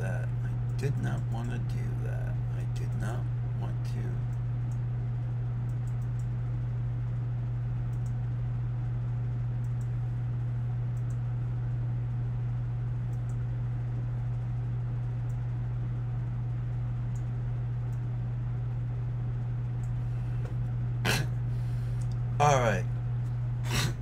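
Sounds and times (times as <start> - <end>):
low hum with faint hiss: 0.0 - 24.0
computer mouse clicks: 5.7 - 6.3, 7.9 - 8.2, 10.9 - 11.2.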